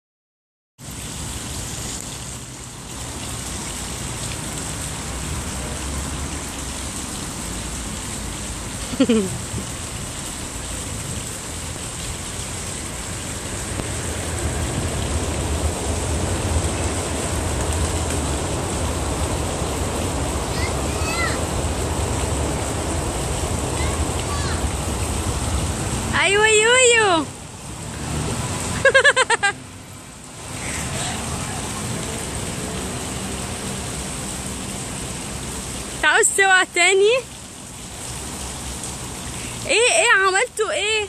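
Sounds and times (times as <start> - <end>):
outdoor rushing noise: 11.3 - 26.4.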